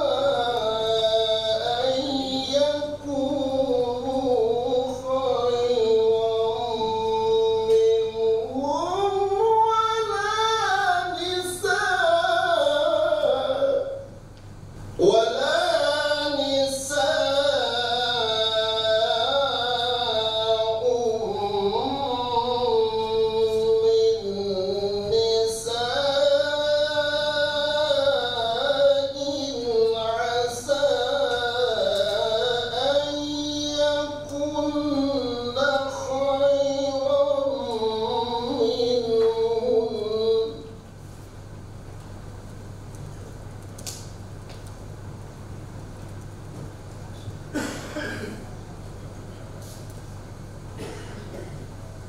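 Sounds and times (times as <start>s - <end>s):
man chanting through a microphone: 0.0s - 14.2s, 14.9s - 40.9s.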